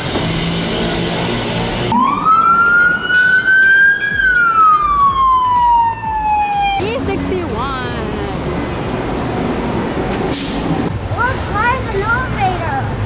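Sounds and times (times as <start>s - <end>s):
street traffic: 0.0s - 13.0s
siren wailing: 1.9s - 7.8s.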